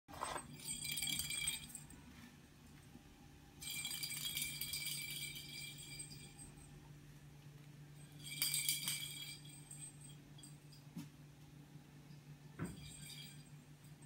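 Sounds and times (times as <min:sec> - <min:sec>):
steady low hum: 0:00.4 - 0:14.0
small bell jingling: 0:00.5 - 0:01.9, 0:03.6 - 0:06.8, 0:08.0 - 0:10.9, 0:12.8 - 0:14.0.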